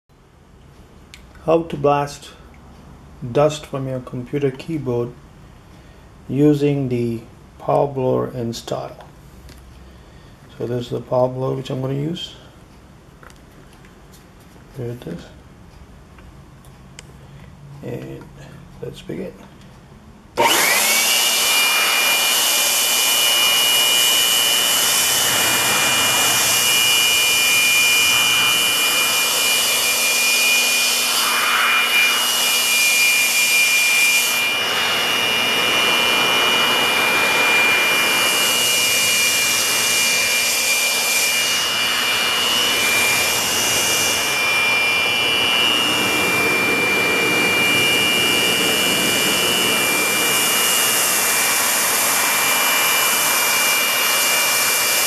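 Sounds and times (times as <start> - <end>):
air rushing through nozzle: 20.4 - 55.0
leaf blower whining: 20.4 - 55.0.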